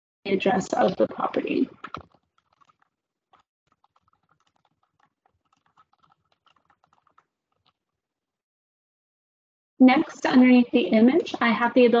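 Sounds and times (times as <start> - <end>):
typing on computer keyboard: 1.8 - 7.8.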